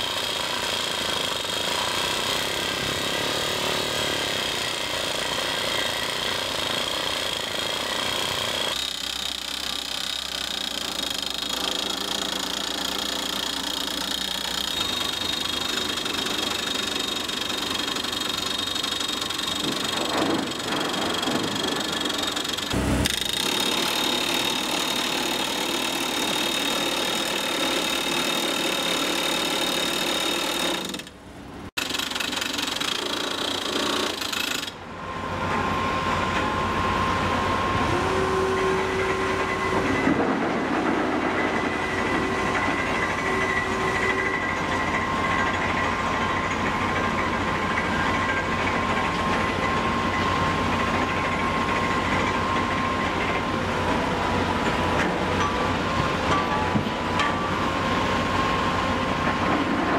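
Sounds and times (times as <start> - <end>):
rig engine running: 17.5 - 28.0.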